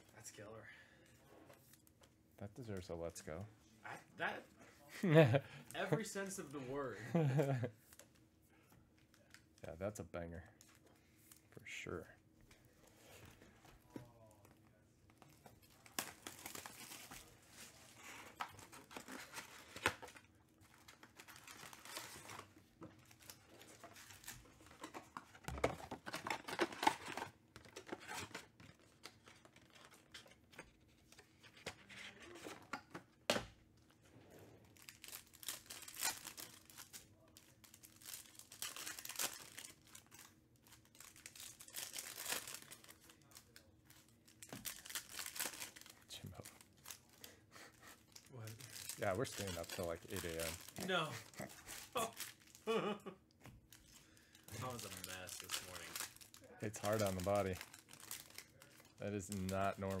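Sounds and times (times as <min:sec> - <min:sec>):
card packs ripping and crinkling: 0:15.3 - 0:30.3, 0:34.7 - 0:47.3, 0:48.1 - 0:52.8, 0:53.7 - 1:00.0.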